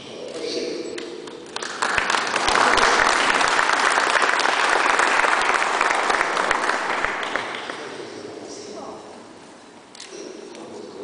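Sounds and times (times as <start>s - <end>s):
audience applauding: 1.4s - 8.0s.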